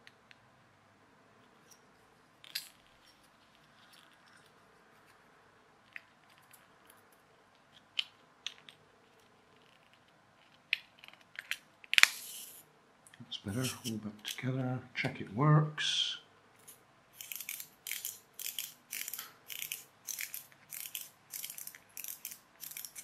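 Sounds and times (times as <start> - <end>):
plastic parts clicking: 17.2 - 23.0.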